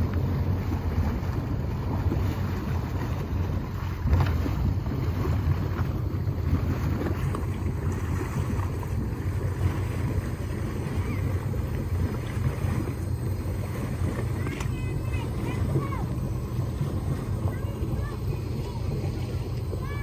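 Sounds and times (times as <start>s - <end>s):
boat engines idling: 0.0s - 20.0s
wind buffeting microphone: 0.0s - 20.0s.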